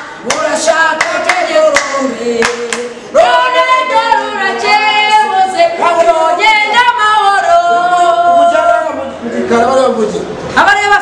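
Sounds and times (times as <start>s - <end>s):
woman and man singing: 0.0s - 11.0s.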